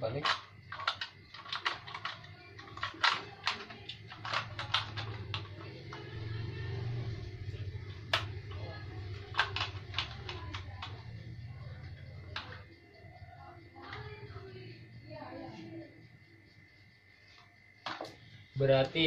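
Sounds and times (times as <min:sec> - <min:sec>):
plastic parts clicking: 0:00.0 - 0:06.3, 0:07.2 - 0:12.6, 0:17.8 - 0:18.2
plastic snap: 0:08.1 - 0:08.4.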